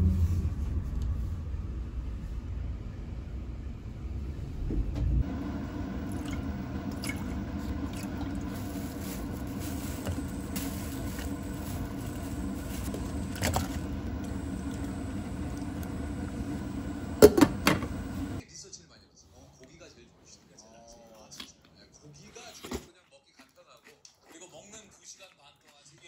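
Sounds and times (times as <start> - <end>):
steady hum: 0.0 - 18.4.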